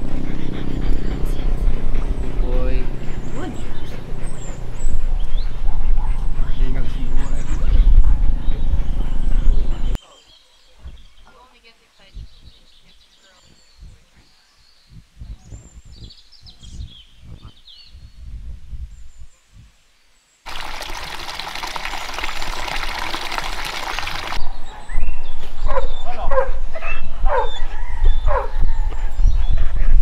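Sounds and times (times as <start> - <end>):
stream flowing water: 20.5 - 24.4
dog barking loudly: 25.7 - 27.5.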